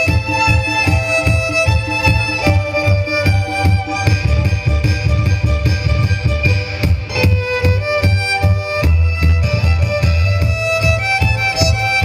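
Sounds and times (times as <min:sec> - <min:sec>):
backing track with heavy bass: 0:00.0 - 0:12.0
violin playing a melody: 0:00.0 - 0:12.0.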